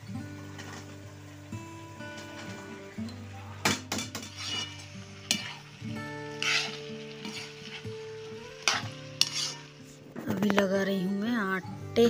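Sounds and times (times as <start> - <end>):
vegetables sizzling in hot oil: 0.0 - 10.7
background music with held notes: 0.0 - 12.0
metal spatula clinking on pan: 8.6 - 9.6.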